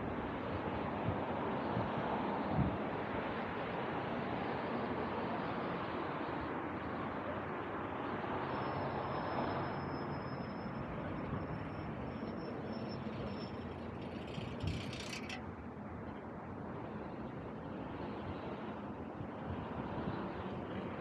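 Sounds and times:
passing vehicle traffic: 0:00.0 - 0:21.0
faint thin high whine: 0:08.4 - 0:15.4.

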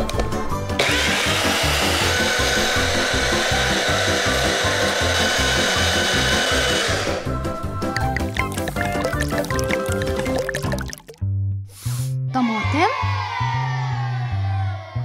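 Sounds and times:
blender motor whining: 0:00.8 - 0:07.4
background music with a beat: 0:05.1 - 0:11.0.

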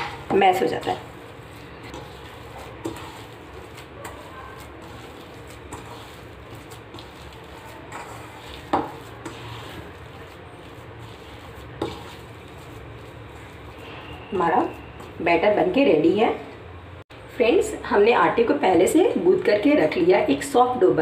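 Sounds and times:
hands mashing potato filling: 0:00.0 - 0:15.5.

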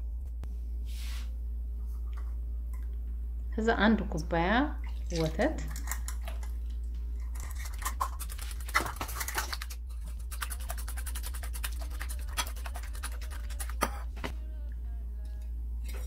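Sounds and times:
steady low hum: 0:00.0 - 0:16.0
whisk beating in ceramic bowl: 0:07.3 - 0:14.3.

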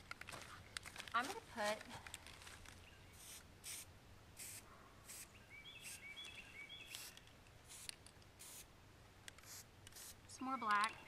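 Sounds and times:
spray paint can hissing: 0:03.2 - 0:06.0, 0:06.8 - 0:08.7, 0:09.4 - 0:10.2
small bird chirping: 0:05.1 - 0:07.4, 0:10.3 - 0:11.0.

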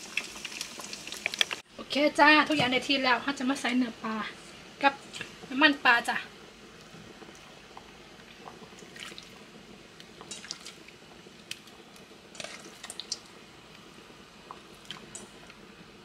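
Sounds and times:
broth bubbling: 0:06.4 - 0:15.7
fish splashing into broth: 0:08.7 - 0:09.3, 0:10.2 - 0:10.8.

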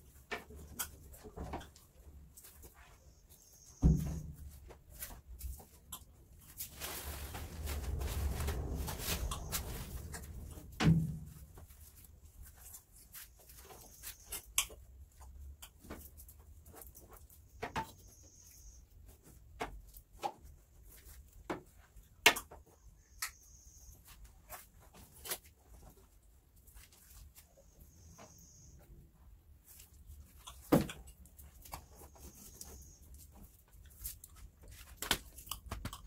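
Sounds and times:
brush scrubbing swish: 0:06.6 - 0:10.6.

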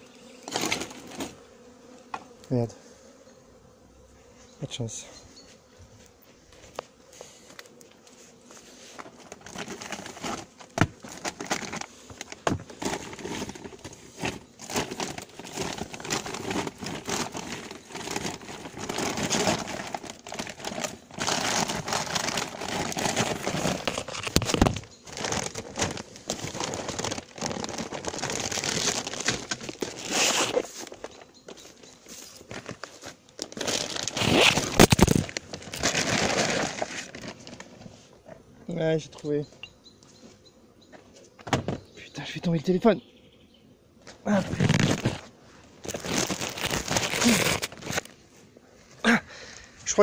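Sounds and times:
rustling and crinkling handling noise: 0:00.4 - 0:01.6, 0:05.9 - 0:40.4, 0:44.0 - 0:50.0.

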